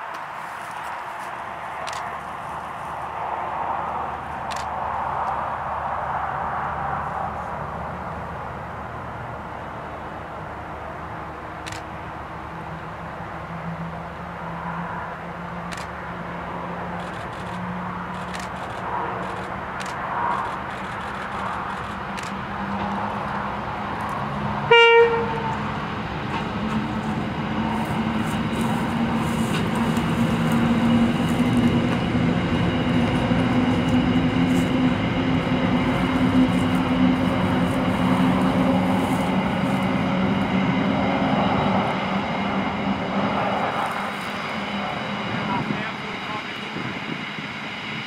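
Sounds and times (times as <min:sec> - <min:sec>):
diesel engines droning: 0:00.0 - 0:48.0
train wagons rolling past: 0:11.0 - 0:48.0
locomotive horn toot: 0:24.6 - 0:25.7.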